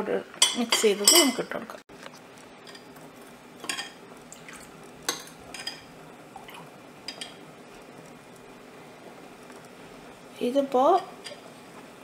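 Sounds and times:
faint steady hiss: 0.0 - 12.0
metal spoon clinking on dish: 0.4 - 1.5.

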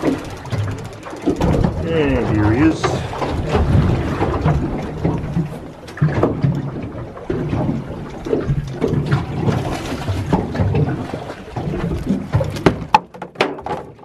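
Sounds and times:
water slapping against boat hull: 0.0 - 14.0.

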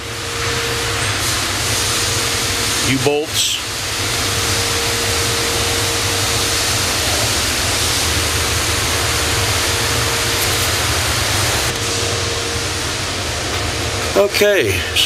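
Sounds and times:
ventilation fans rushing: 0.0 - 15.0.

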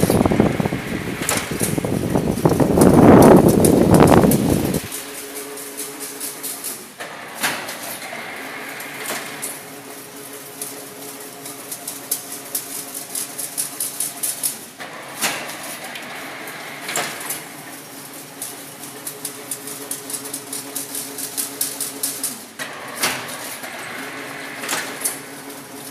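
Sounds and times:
machine motor hum: 0.0 - 13.6
wire ticking and clattering: 1.2 - 6.8.

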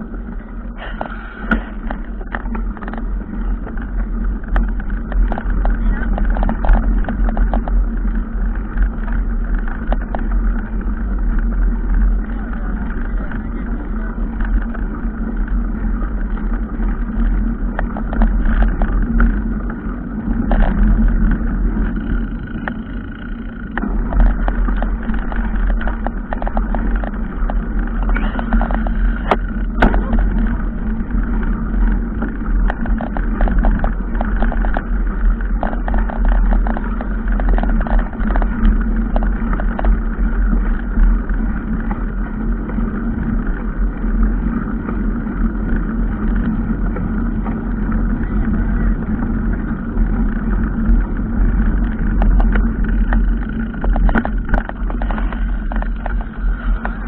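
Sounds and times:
vehicle engine rumbling: 0.0 - 57.0
vehicle rattles and knocks: 0.0 - 57.0.

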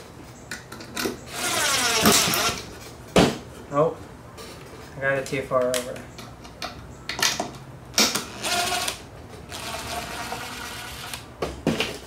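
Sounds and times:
cordless drill driving screw: 1.3 - 2.6.

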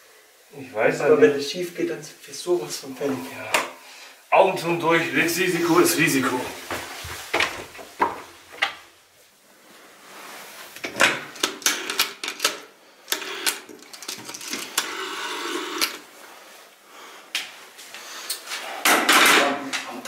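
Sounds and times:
rotary telephone dial clicking and whirring: 11.4 - 16.0.

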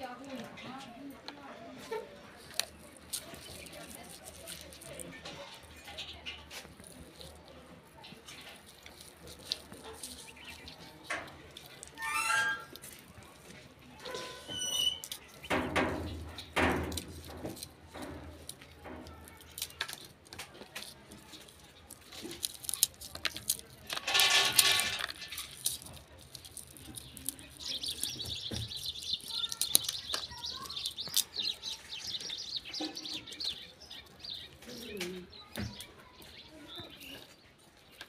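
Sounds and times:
birds chirping: 1.8 - 12.8, 24.6 - 38.0
garlic skins crackling: 1.8 - 38.0.

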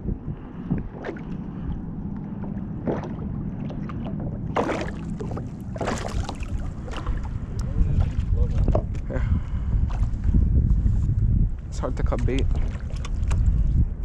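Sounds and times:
water lapping against kayak hull: 0.0 - 14.0
wind on microphone: 0.0 - 14.0
water splashes: 0.8 - 9.0, 12.0 - 13.8.

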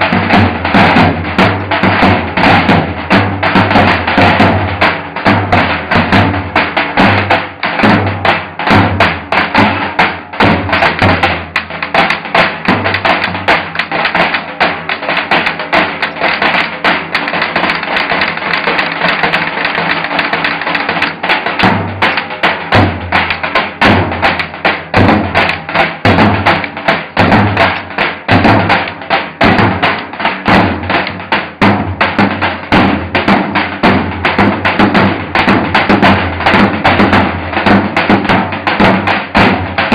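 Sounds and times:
sharp rim and stick taps: 10.9 - 22.4.

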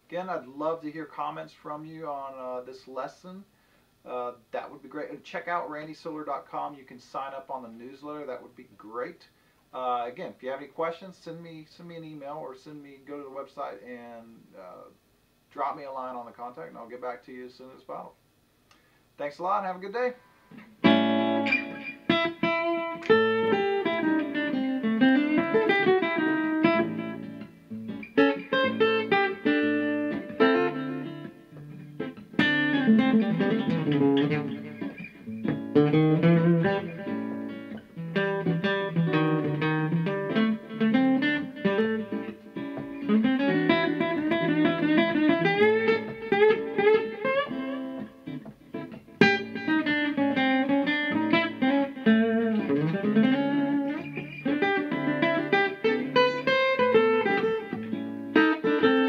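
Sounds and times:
acoustic guitar blues licks: 20.4 - 59.0
hard-struck guitar chords: 20.5 - 59.0.

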